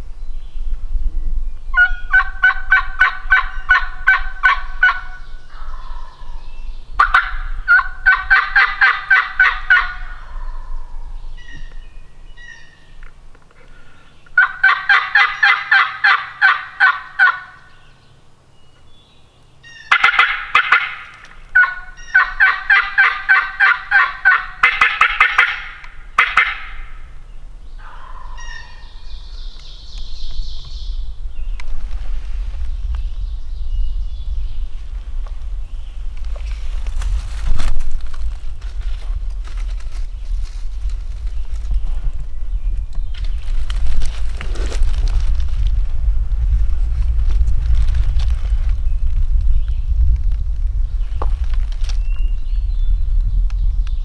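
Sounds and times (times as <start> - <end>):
turkey gobbling: 1.8 - 6.2, 7.0 - 10.8, 14.4 - 17.6, 19.7 - 27.0, 27.8 - 29.0.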